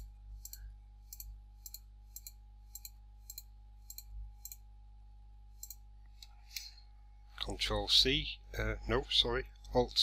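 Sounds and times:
computer mouse clicking: 0:00.0 - 0:04.6, 0:05.6 - 0:06.7.

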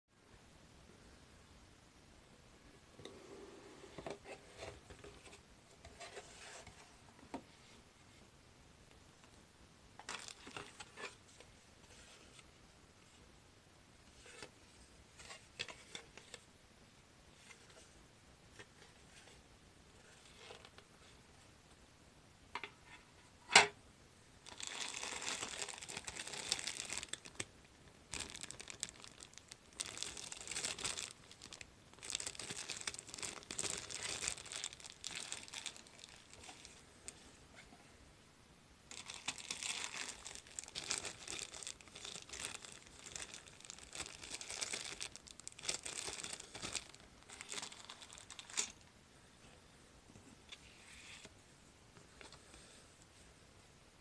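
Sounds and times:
plastic bags crinkling: 0:10.0 - 0:11.1, 0:24.4 - 0:27.5, 0:28.1 - 0:36.8, 0:38.9 - 0:48.8.

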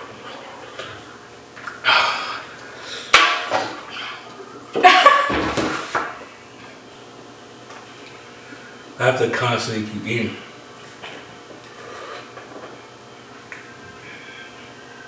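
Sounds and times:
people gasping and groaning: 0:01.8 - 0:04.7.

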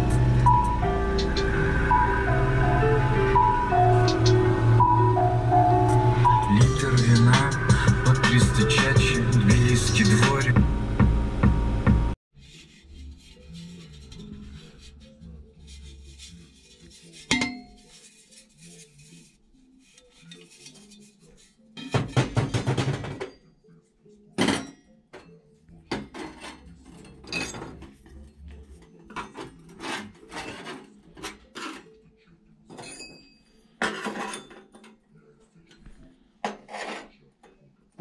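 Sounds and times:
metal pipes clinking on workbench: 0:25.9 - 0:28.0.

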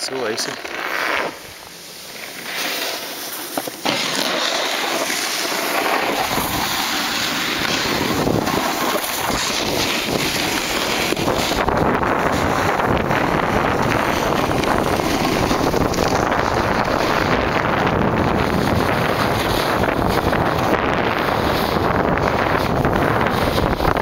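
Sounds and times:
snowboard scraping icy snow: 0:00.0 - 0:24.0
wind rushing over microphone: 0:04.8 - 0:24.0.

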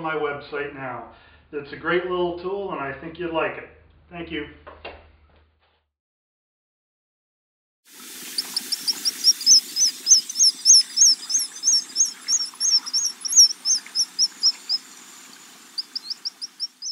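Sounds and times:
bird high whistled notes: 0:08.4 - 0:16.9.

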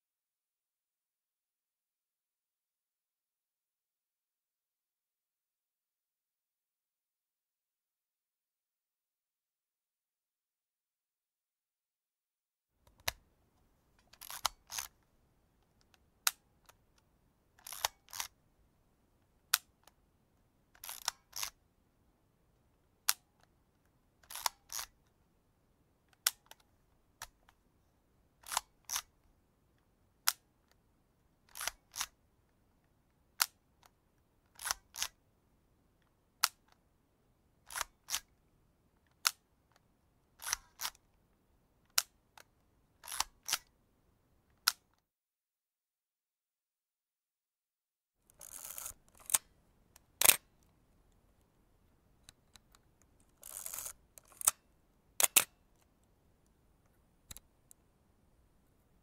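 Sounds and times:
camera film advance mechanism: 0:14.2 - 0:14.9, 0:17.6 - 0:18.3, 0:20.8 - 0:21.6, 0:24.3 - 0:24.9, 0:28.5 - 0:29.1, 0:31.6 - 0:32.1, 0:34.6 - 0:35.1, 0:43.0 - 0:43.6, 0:48.4 - 0:49.4, 0:50.2 - 0:50.4, 0:53.3 - 0:54.6, 0:55.2 - 0:55.5
camera shutter click: 0:50.2 - 0:50.4.

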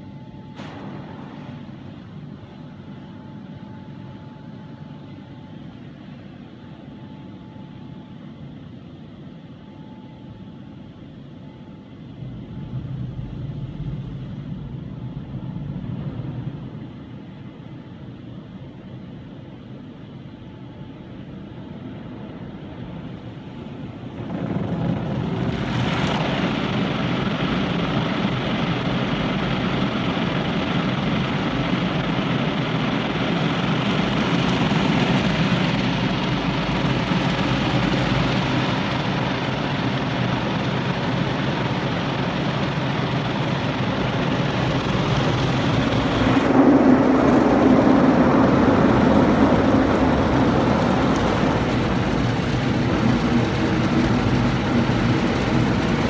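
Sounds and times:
car wash machinery rushing: 0:23.5 - 0:56.0.

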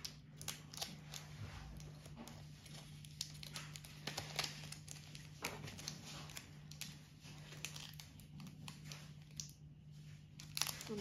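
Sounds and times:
foil crinkling: 0:00.0 - 0:11.0
scissors snipping foil: 0:10.4 - 0:11.0.

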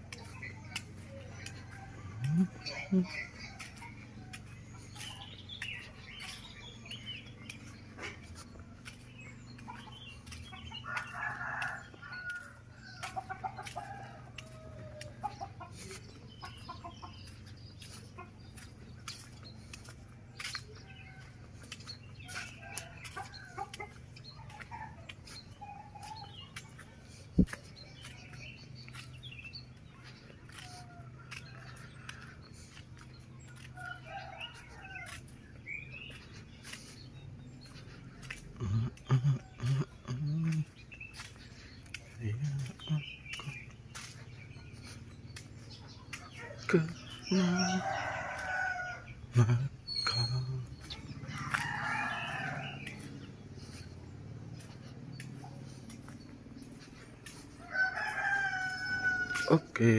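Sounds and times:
hens clucking: 0:00.0 - 0:29.1
small birds chirping: 0:00.0 - 0:59.8
rooster crowing: 0:10.8 - 0:15.2, 0:47.2 - 0:49.1, 0:51.1 - 0:53.2, 0:57.6 - 0:59.6.

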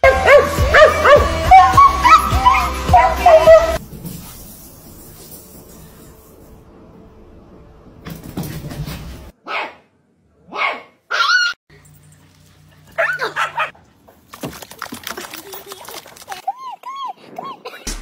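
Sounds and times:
dogs barking: 0:00.0 - 0:03.8, 0:09.4 - 0:11.5, 0:12.6 - 0:13.9.

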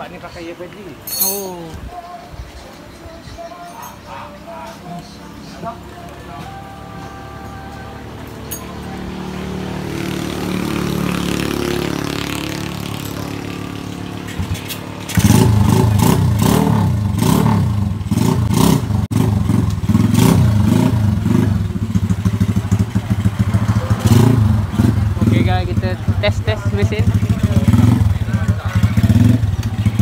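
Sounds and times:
motorcycle engine revving: 0:07.8 - 0:30.0.

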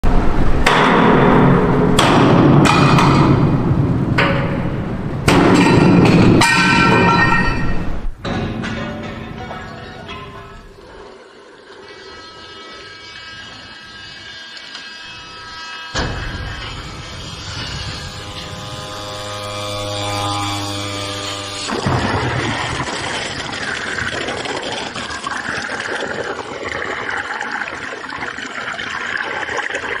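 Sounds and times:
hammer striking steel block: 0:00.6 - 0:03.6, 0:04.2 - 0:10.7
water streaming and trickling: 0:09.0 - 0:15.0, 0:16.0 - 0:30.0.

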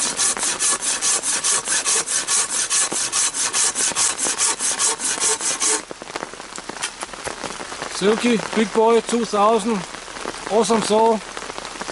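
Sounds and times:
pruning saw cutting log: 0:00.0 - 0:05.8.

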